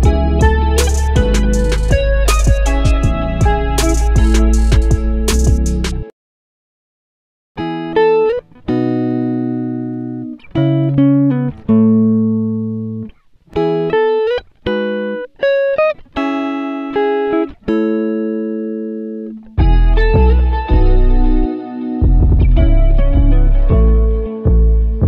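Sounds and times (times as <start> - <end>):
fuller chord with bass: 0.0 - 6.1, 19.6 - 25.0
guitar picking melodic phrases: 0.0 - 6.1, 7.6 - 25.0.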